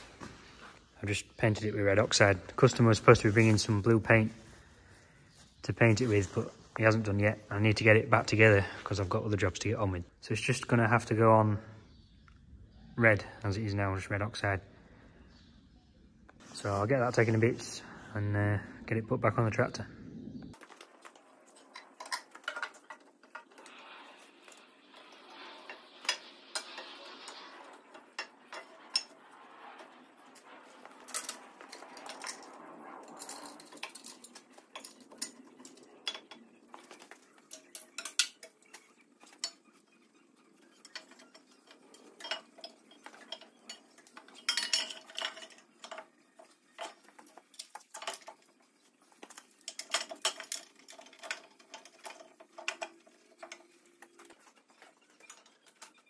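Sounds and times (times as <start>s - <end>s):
metal scraping: 20.5s - 56.0s
metal clinks and knocks: 20.6s - 56.0s.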